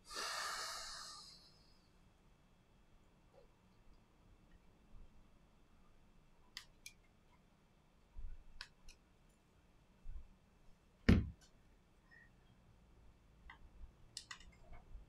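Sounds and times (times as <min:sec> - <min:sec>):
louder knock: 0:11.1 - 0:11.3.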